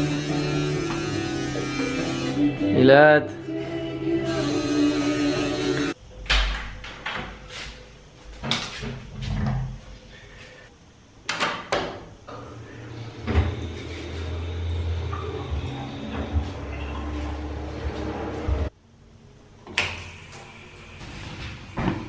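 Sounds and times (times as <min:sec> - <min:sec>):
low hum with hiss: 0:00.0 - 0:22.0.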